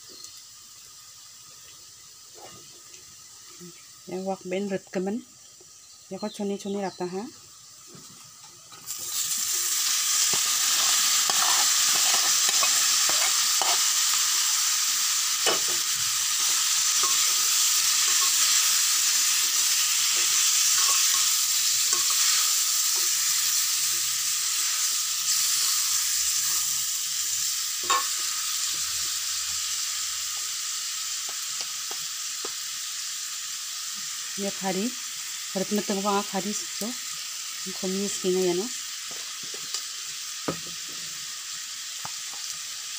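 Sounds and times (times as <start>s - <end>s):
meat sizzling in hot oil: 0.0s - 42.9s
metal ladle scraping a wok: 8.8s - 14.6s, 15.4s - 29.1s.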